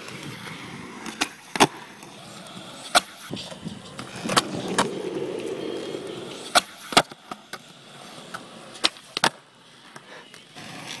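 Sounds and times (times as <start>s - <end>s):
skateboard wheels rolling on asphalt: 0.0s - 11.0s
skateboard tail popping and landing: 2.9s - 7.6s, 8.3s - 10.0s.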